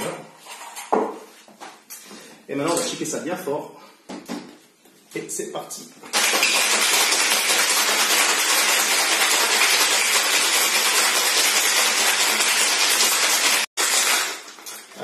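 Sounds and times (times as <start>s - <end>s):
ice rattling in cocktail shaker: 6.1s - 15.0s.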